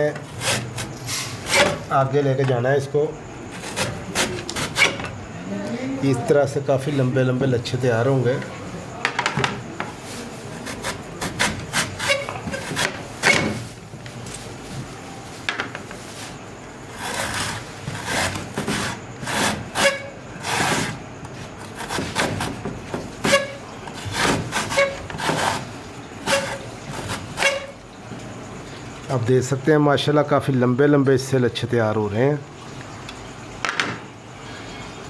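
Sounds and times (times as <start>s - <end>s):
potato grated on metal grater: 0.3s - 1.8s, 3.5s - 5.0s, 10.5s - 13.4s, 16.9s - 21.0s, 21.6s - 22.6s, 23.2s - 27.8s.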